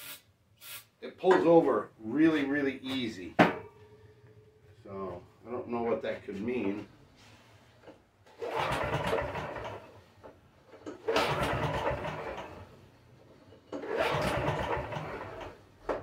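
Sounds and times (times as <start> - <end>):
pull-starter cranking engine: 8.3 - 10.0, 10.8 - 12.8, 13.7 - 15.6.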